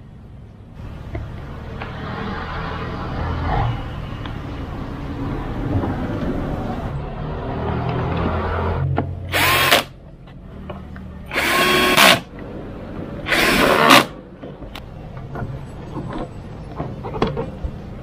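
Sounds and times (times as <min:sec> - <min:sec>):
cordless drill driving fasteners: 0:09.3 - 0:09.9, 0:11.3 - 0:12.3, 0:13.3 - 0:14.1.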